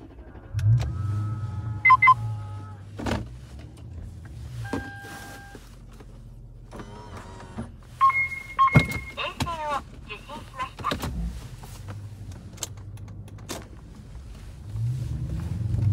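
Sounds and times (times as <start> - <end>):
car engine starting and idling: 0.0 - 15.9
long steady beep: 1.8 - 2.3, 8.0 - 9.2.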